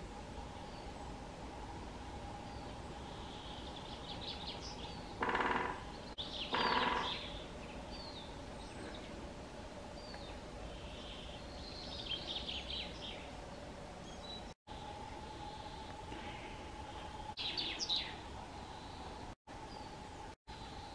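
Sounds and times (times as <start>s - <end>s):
small birds chirping: 2.3s - 20.9s
woodpecker drumming: 5.1s - 7.4s.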